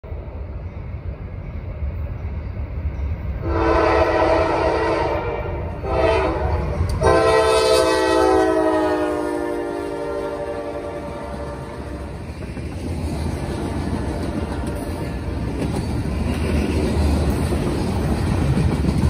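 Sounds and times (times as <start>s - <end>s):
locomotive air horn blasts: 3.4s - 12.0s.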